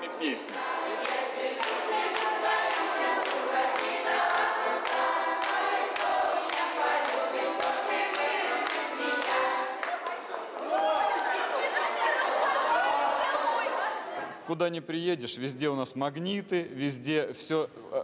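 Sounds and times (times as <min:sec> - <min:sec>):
group singing folk song: 0:00.0 - 0:10.0
hand claps: 0:00.5 - 0:11.3.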